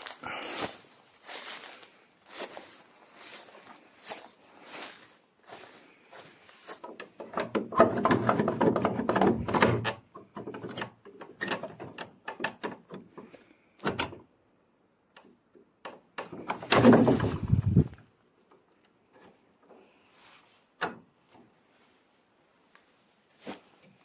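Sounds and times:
wooden door scraping open: 16.4s - 17.9s.

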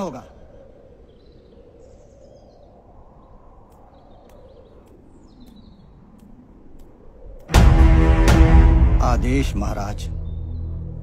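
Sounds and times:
soft bird chirps: 0.0s - 7.4s, 9.9s - 11.0s
faint outdoor background noise: 0.0s - 7.6s.

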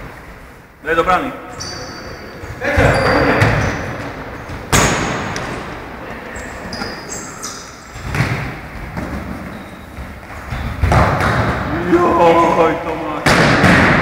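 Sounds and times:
shoes squeaking on court floor: 1.4s - 11.7s.

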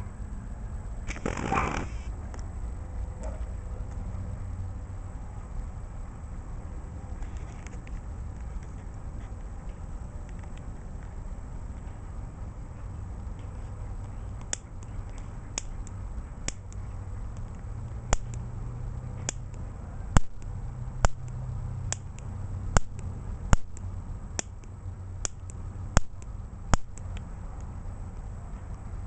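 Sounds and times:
spark snapping: 1.0s - 2.1s, 18.1s - 18.4s, 20.2s - 27.3s
piezo lighter clicking: 16.5s - 18.4s, 20.2s - 27.3s.

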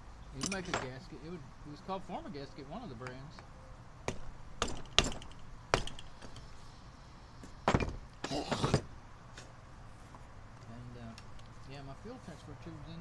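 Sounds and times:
metal parts clattering: 0.4s - 1.0s.

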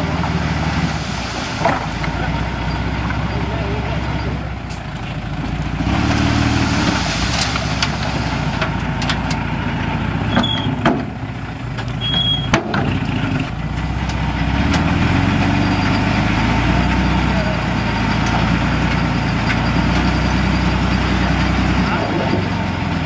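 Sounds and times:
diesel engine of heavy machinery: 0.0s - 23.0s
short high squeaks: 10.3s - 10.8s, 12.0s - 12.6s.

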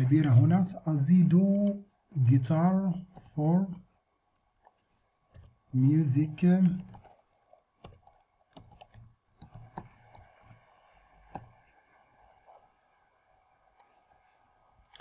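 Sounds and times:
computer keyboard typing: 5.3s - 5.6s, 6.2s - 10.6s, 11.2s - 12.7s.

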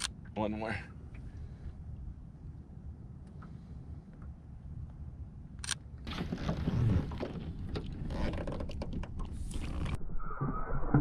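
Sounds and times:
water sloshing against boat hull: 6.1s - 10.0s.

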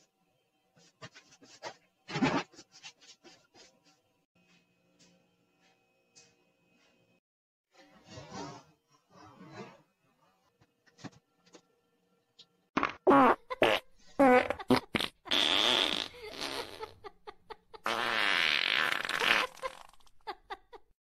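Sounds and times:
fart sounds: 12.8s - 16.9s, 17.8s - 20.1s.

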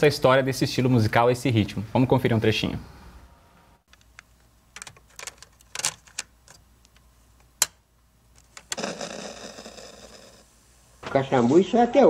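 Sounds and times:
steady hiss with faint hum: 0.0s - 12.0s
cassette recorder buttons clicking: 3.9s - 7.8s.

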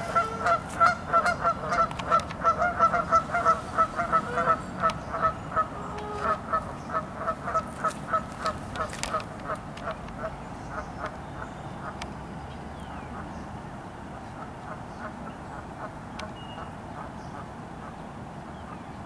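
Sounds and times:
geese honking: 0.0s - 12.0s.

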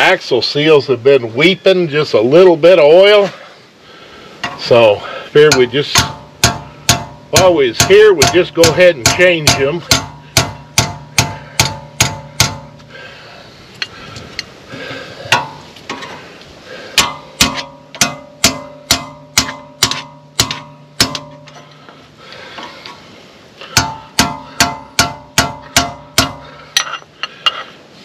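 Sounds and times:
hammer striking steel bar: 5.4s - 12.9s, 15.3s - 15.6s, 17.0s - 21.7s, 23.7s - 27.0s.

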